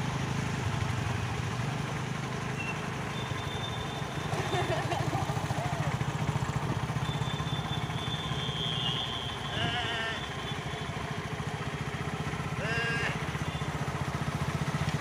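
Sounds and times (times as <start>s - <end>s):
motorcycle engine running: 0.0s - 15.0s
short calls: 7.1s - 10.7s.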